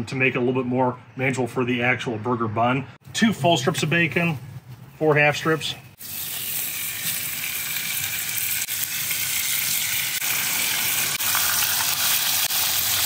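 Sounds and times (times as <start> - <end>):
bacon sizzling on hot stone: 6.0 - 13.0.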